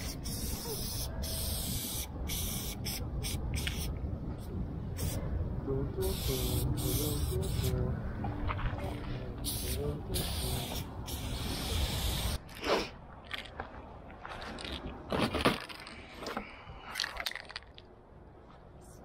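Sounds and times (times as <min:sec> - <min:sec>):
spray paint can hissing: 0:00.0 - 0:04.0, 0:05.0 - 0:05.2, 0:06.0 - 0:07.8, 0:09.4 - 0:12.4
crunching and scraping: 0:12.4 - 0:17.9.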